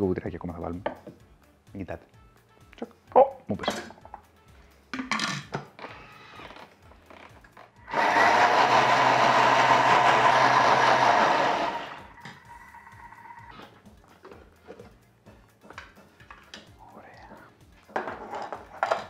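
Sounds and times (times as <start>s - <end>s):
blender running: 7.8s - 12.1s.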